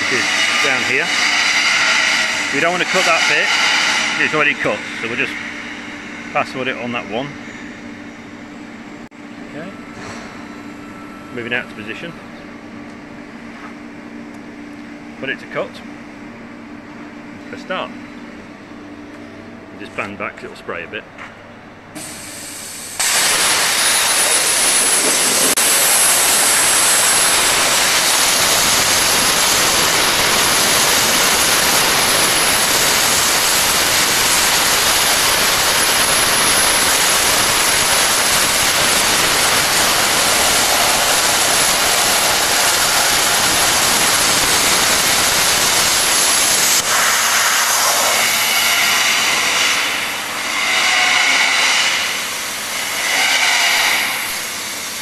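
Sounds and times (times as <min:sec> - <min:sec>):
plasma torch hissing: 0:00.0 - 0:06.3, 0:22.0 - 0:55.0
thin high whine: 0:00.0 - 0:14.2.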